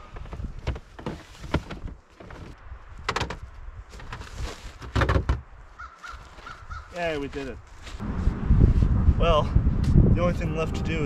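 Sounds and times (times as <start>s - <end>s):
extension cord knocking and rustling: 0.2s - 5.5s.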